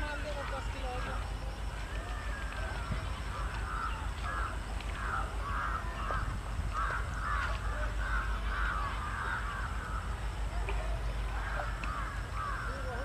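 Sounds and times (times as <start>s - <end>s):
steady low rumble: 0.0s - 13.0s
crows cawing: 2.2s - 10.2s, 11.4s - 13.0s.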